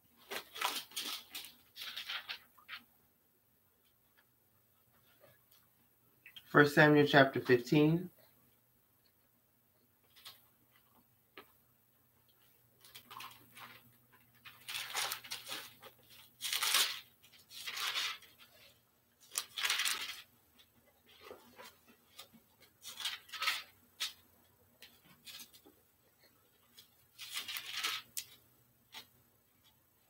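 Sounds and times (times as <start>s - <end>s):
book pages turning: 0.2s - 2.9s, 12.8s - 24.2s, 26.6s - 29.8s.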